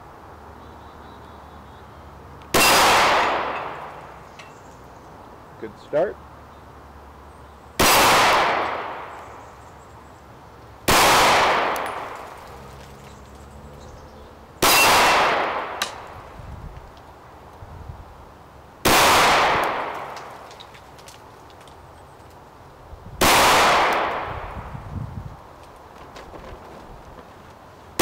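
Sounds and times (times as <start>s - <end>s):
pistol shots with echo: 2.5s - 4.0s, 7.8s - 9.1s, 10.9s - 12.2s, 14.6s - 16.0s, 18.8s - 20.2s, 23.2s - 24.6s.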